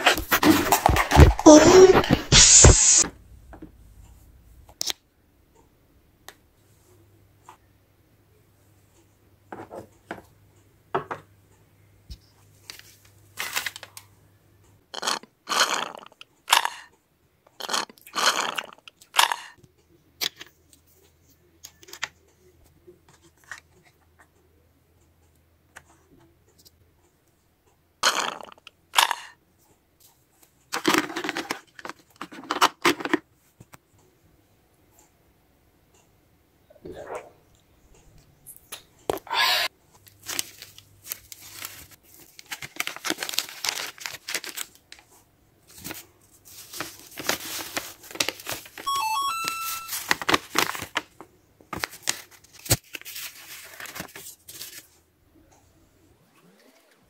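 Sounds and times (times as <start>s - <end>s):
plastic toy dishes rustling and clicking: 0.0s - 2.2s, 30.7s - 33.3s.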